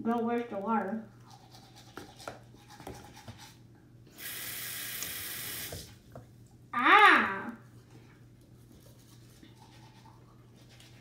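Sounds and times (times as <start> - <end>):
sink tap running: 4.1 - 5.9.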